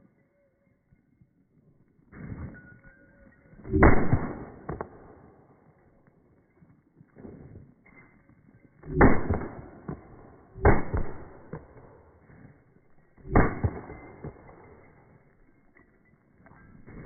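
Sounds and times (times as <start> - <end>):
pistol shots echoing: 3.8 - 5.2, 8.9 - 12.0, 13.2 - 14.6.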